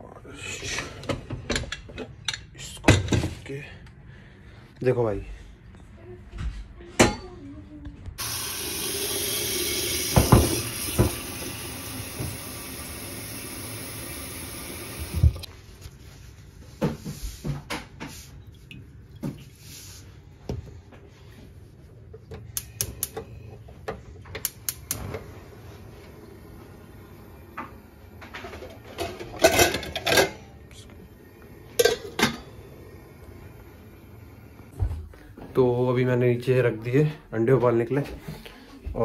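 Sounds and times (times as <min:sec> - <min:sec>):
tap water running into pot: 0:08.2 - 0:15.5
gas burner igniter clicks: 0:24.4 - 0:25.1
metal pot clunking: 0:31.7 - 0:32.5.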